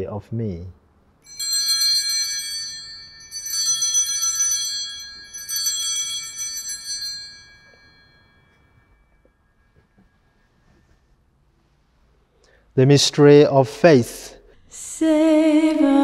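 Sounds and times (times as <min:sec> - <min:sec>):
altar bells ringing: 0:01.2 - 0:10.7.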